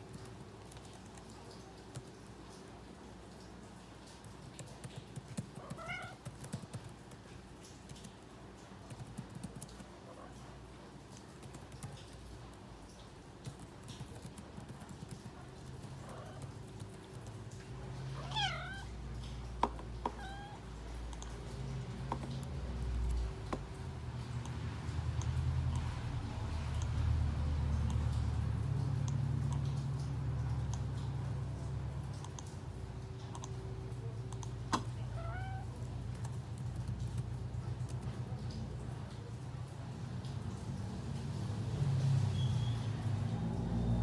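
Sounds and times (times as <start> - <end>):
cat meowing: 5.6 - 6.3, 18.1 - 18.9, 20.0 - 20.7, 34.8 - 35.8.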